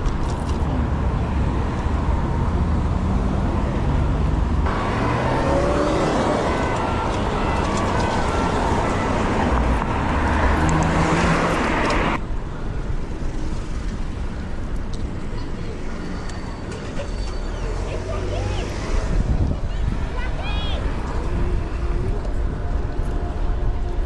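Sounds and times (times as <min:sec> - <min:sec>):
car engines and road noise: 0:00.0 - 0:24.0
engine rising in pitch: 0:04.7 - 0:11.8
wind rumble on microphone: 0:18.7 - 0:24.0.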